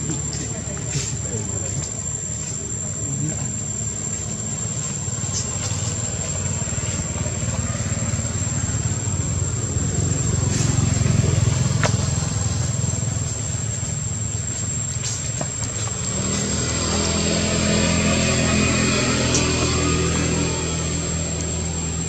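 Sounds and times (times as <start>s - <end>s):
engine droning: 0.0s - 22.0s
higher engine note: 15.8s - 22.0s.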